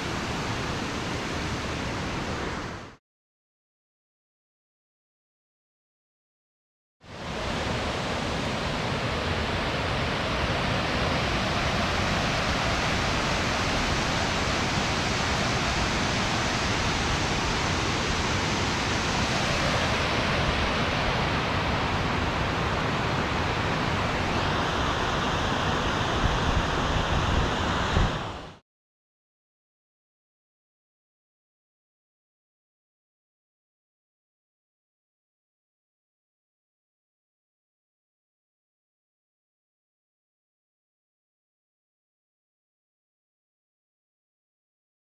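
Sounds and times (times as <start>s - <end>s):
waterfall rushing: 0.0s - 3.0s, 7.1s - 28.6s.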